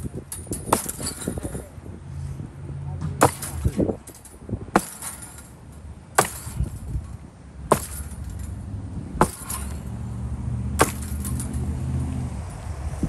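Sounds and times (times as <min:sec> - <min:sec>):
vehicle engine running low: 0:08.2 - 0:13.0.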